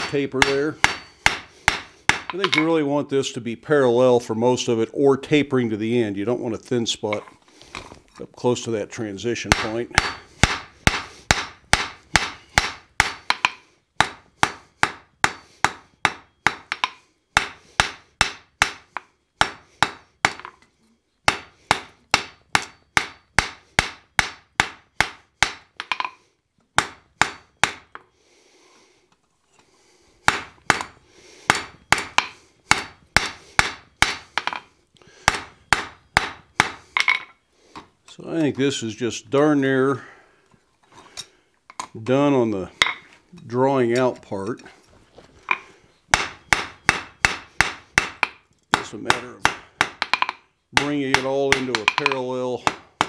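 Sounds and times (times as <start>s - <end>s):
hammer striking metal on anvil: 0.0s - 2.7s, 9.5s - 20.6s, 46.2s - 52.8s.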